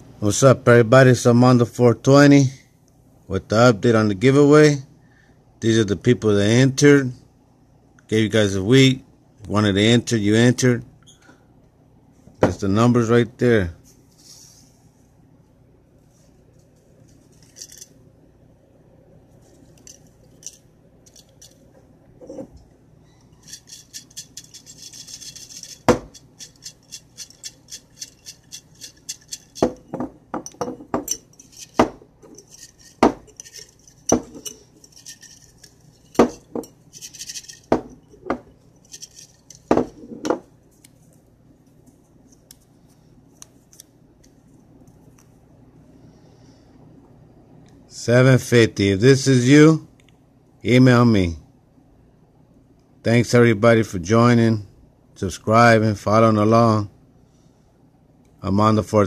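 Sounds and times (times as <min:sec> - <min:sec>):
paper slips rattling in glass jar: 0:23.4 - 0:29.9, 0:30.6 - 0:39.8
glass jar knocking and clinking: 0:23.4 - 0:40.5.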